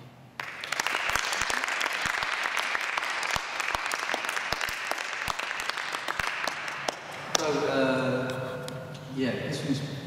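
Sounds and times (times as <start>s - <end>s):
audience applauding: 0.4s - 7.6s.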